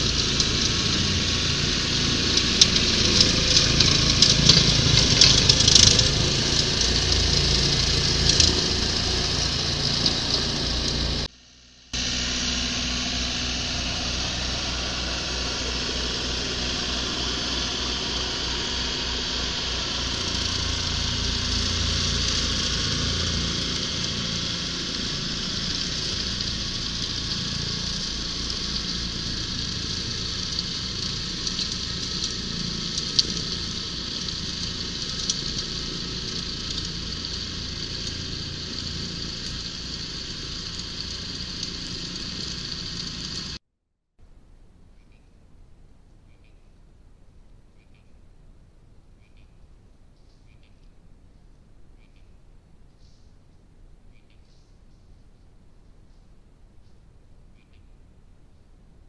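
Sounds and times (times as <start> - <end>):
tractor engine mowing grass: 0.0 - 43.6.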